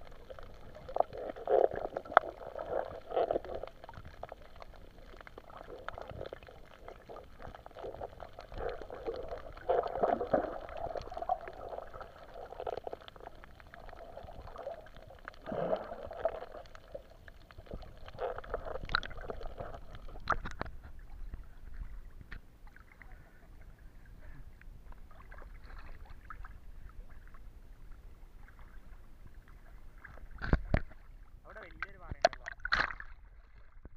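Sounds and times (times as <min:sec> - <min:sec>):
underwater gurgling and sloshing: 0:00.0 - 0:33.9.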